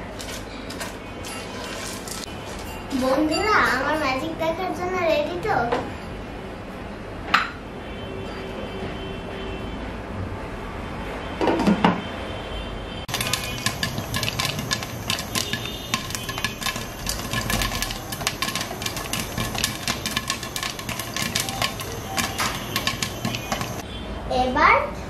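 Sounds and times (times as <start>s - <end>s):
corn kernels popping in pan: 13.1s - 23.8s.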